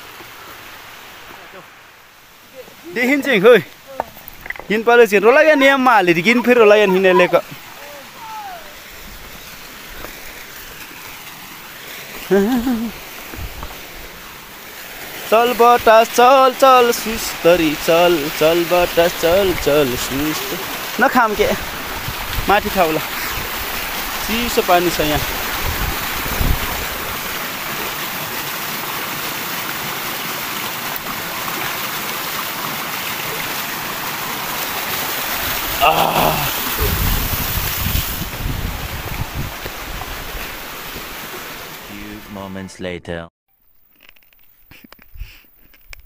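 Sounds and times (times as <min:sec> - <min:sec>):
flowing water rushing: 0:00.0 - 0:42.4
person's voice: 0:02.5 - 0:08.8, 0:15.3 - 0:21.6, 0:22.4 - 0:23.1, 0:24.2 - 0:25.3, 0:35.8 - 0:37.0, 0:41.9 - 0:43.3.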